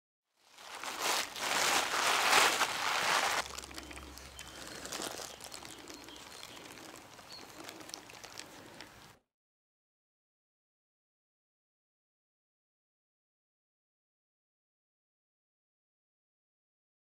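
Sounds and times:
close rustling: 0.5s - 9.0s
loud rustling: 0.6s - 3.6s.

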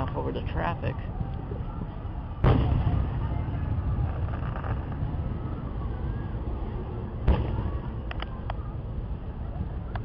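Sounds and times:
traffic: 0.0s - 10.0s
wind on microphone: 0.0s - 10.0s
distant firework boom: 2.4s - 3.5s, 7.2s - 7.9s.

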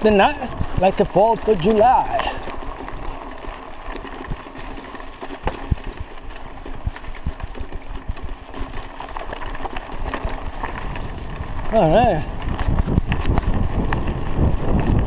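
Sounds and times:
bike knocking and rattling: 0.0s - 15.0s
bike tyres rumbling on gravel: 0.0s - 15.0s.

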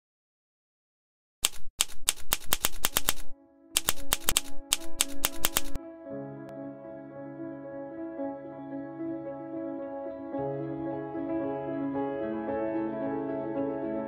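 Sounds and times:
typewriter keys striking: 1.4s - 5.8s
soft music with held notes: 4.4s - 14.0s.

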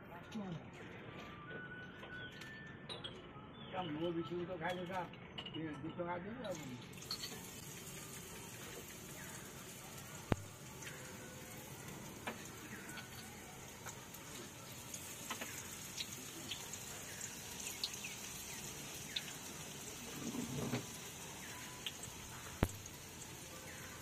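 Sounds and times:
food deep-frying in oil: 6.5s - 24.0s.

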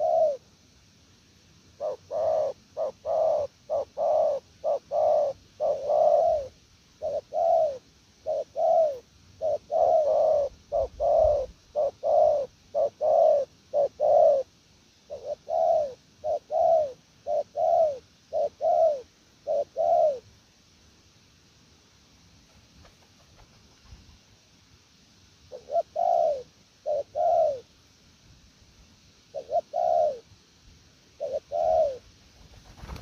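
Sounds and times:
dove cooing: 0.0s - 0.5s, 1.8s - 14.5s, 15.1s - 20.3s, 25.5s - 27.7s, 29.3s - 30.3s, 31.2s - 33.0s.

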